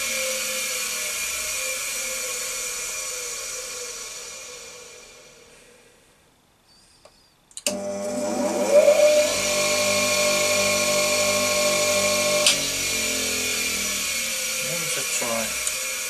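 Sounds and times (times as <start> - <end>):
bench grinder motor whining: 7.7 - 16.0.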